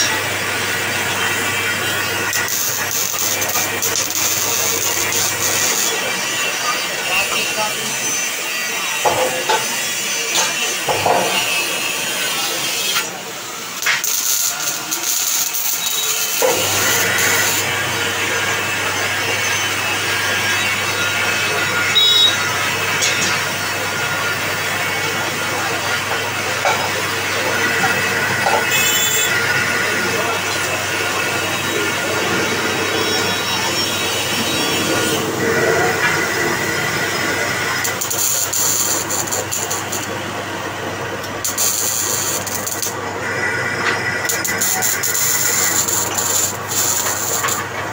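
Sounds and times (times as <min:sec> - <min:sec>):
lathe cutting metal: 0:00.0 - 0:47.9
high whine: 0:13.3 - 0:47.8.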